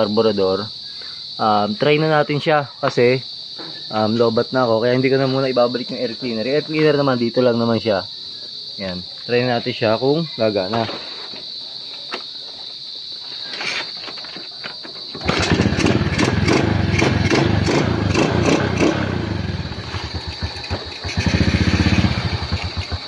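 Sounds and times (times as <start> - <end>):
small motorcycle engine running: 15.2 - 23.0.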